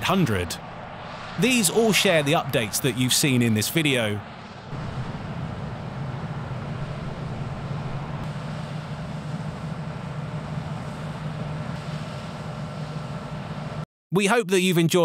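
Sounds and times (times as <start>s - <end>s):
combine harvester engine drone: 0.0s - 13.8s
threshing machinery whirring: 4.7s - 13.8s.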